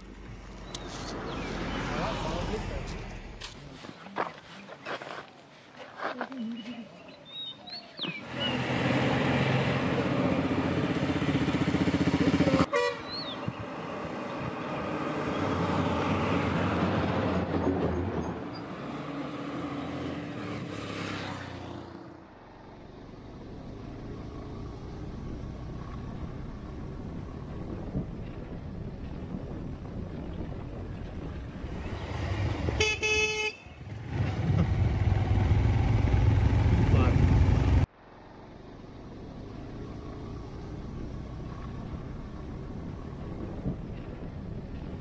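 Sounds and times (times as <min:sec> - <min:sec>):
motorcycle riding: 0:08.0 - 0:17.6, 0:18.8 - 0:45.0
wind noise: 0:25.3 - 0:33.2, 0:40.3 - 0:45.0.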